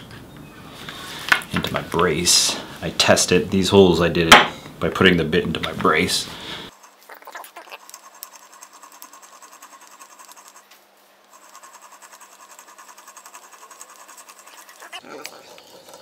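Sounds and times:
hand drill clicking whir: 7.8 - 10.6, 11.2 - 15.0.

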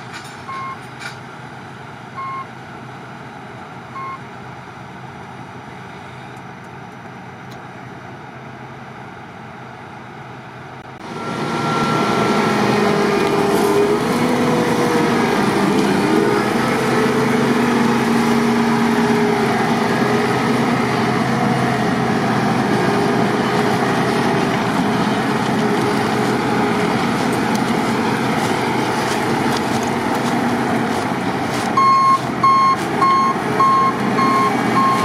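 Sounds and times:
combine harvester engine and threshing: 0.0 - 35.0
reversing alarm beeping: 2.2 - 2.5, 3.9 - 4.2, 11.1 - 12.6, 31.8 - 35.0.

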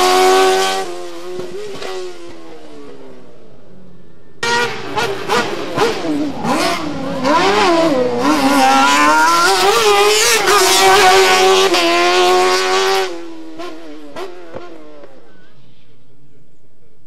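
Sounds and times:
race car engine revving: 0.0 - 3.2, 4.4 - 15.4.

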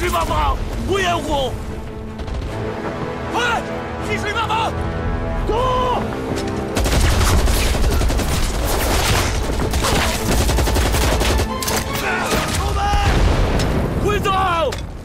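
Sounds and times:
music: 0.0 - 13.8
rifles and machine guns firing: 2.2 - 2.6, 6.7 - 11.6.

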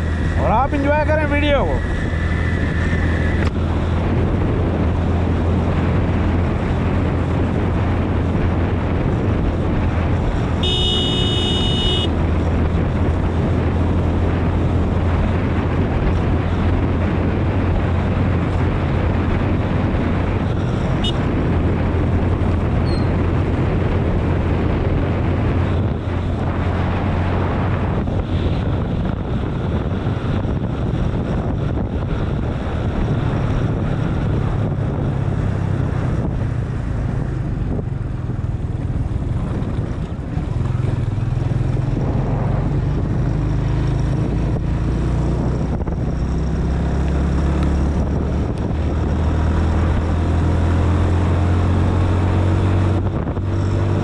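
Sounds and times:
motorcycle engine cruising: 0.0 - 54.0
wind noise on microphone: 0.0 - 54.0
horn: 10.6 - 12.1.

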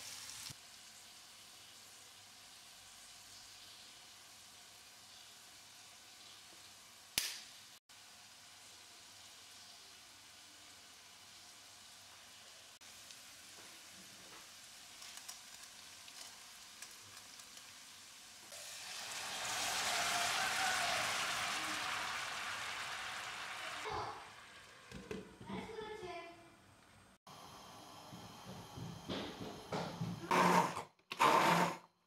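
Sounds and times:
loud sizzle of liquid in hot pan: 0.0 - 24.9
vegetables frying in a pan: 0.0 - 25.9.

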